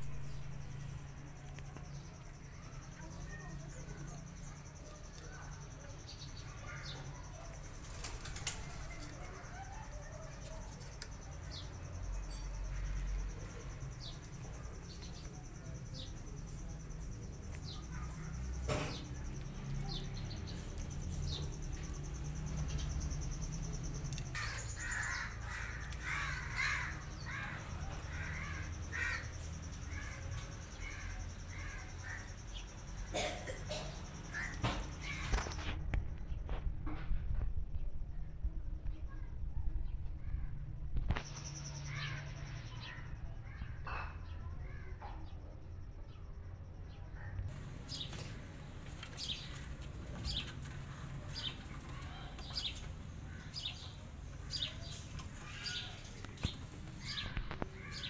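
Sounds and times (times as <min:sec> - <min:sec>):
high-pitched insect trill: 0:00.0 - 0:35.7, 0:41.1 - 0:43.5.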